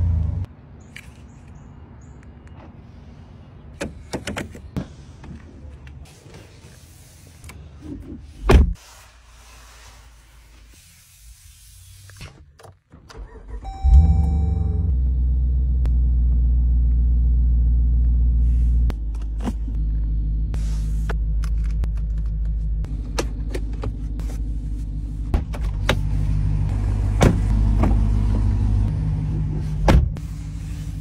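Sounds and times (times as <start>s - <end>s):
car engine starting and idling: 12.9s - 31.0s.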